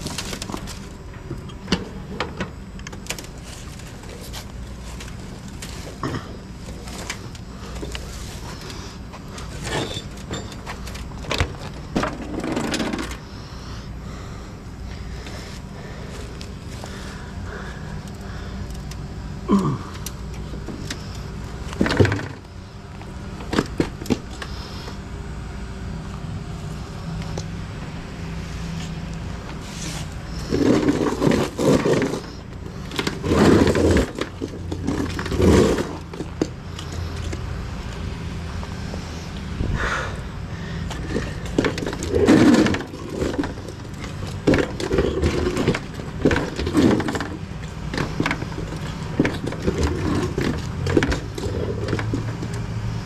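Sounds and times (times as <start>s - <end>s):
sheet metal scraping on pavement: 29.6s - 37.3s, 41.1s - 52.6s.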